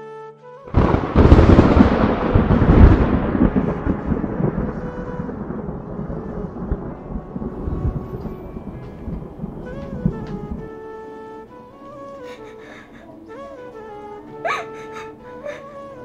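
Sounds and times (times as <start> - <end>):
thunderclap rumbling: 0.7 - 10.7.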